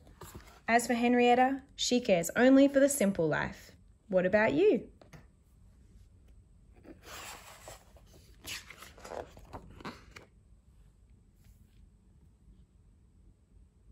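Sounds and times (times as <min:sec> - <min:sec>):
paper page turning: 0:06.8 - 0:10.3.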